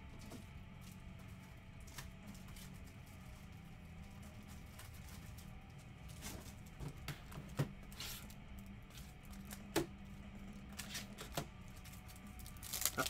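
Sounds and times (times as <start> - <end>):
trading cards handled: 10.8 - 13.0.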